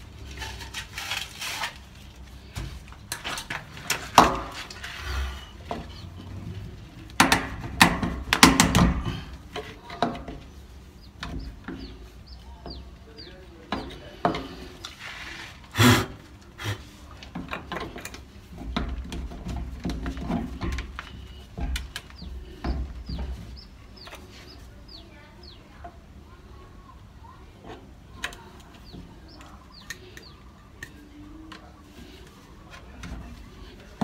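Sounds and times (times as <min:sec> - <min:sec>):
small birds chirping: 0:05.3 - 0:07.1, 0:09.1 - 0:14.9, 0:17.8 - 0:34.0.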